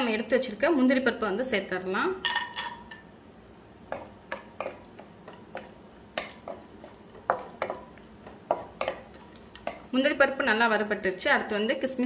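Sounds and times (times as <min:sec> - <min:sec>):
faint background hiss: 0:00.0 - 0:12.0
nuts frying with spatula clicks: 0:03.9 - 0:10.6.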